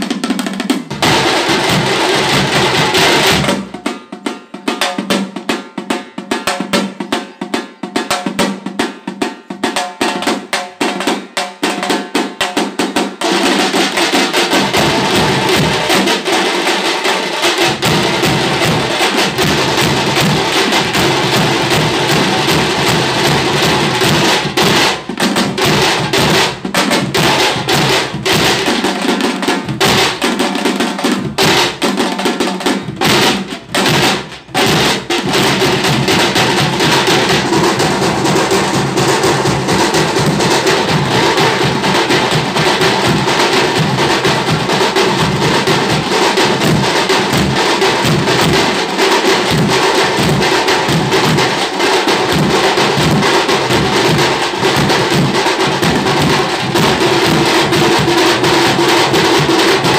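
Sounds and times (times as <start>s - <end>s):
street drum band playing: 0.0s - 59.9s.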